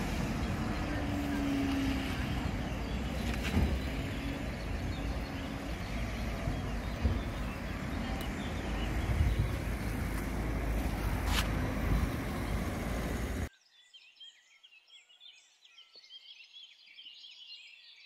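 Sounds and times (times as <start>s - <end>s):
car engine: 0.0s - 13.5s
road traffic: 0.0s - 13.5s
low microphone rumble: 6.0s - 13.5s.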